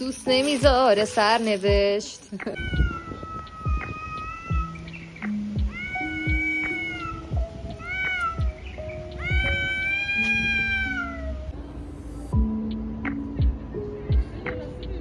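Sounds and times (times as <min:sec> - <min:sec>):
soft background music: 0:00.0 - 0:15.0
cat yowling: 0:02.6 - 0:04.8, 0:05.6 - 0:11.5.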